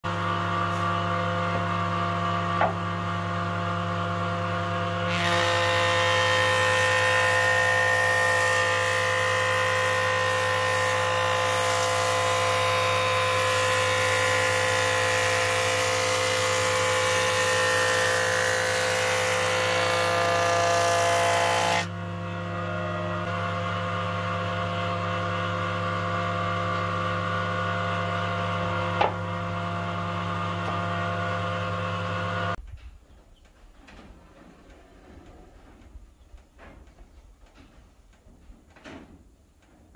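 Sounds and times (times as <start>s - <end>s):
wood planer humming: 0.0s - 32.6s
planer cutting board: 0.1s - 32.6s.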